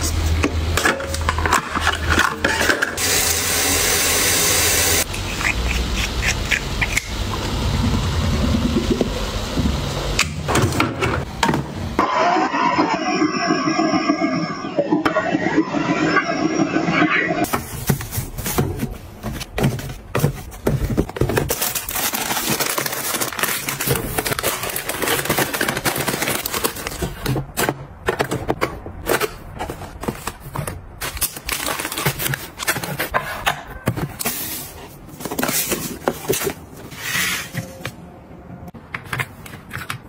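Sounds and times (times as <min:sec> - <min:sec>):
plastic packets crinkling: 0:20.5 - 0:27.2.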